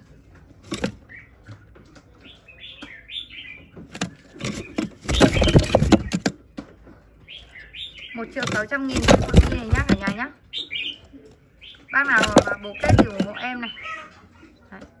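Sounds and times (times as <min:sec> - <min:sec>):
wings flapping in wooden box: 0:00.7 - 0:01.0, 0:03.9 - 0:06.4, 0:08.4 - 0:10.2, 0:12.1 - 0:13.4
bird chirping: 0:00.7 - 0:14.7.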